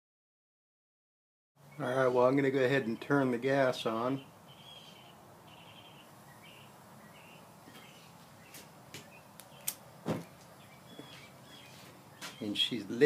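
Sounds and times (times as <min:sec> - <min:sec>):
birds chirping: 0:01.6 - 0:13.0
sharp clicks: 0:09.4 - 0:09.8.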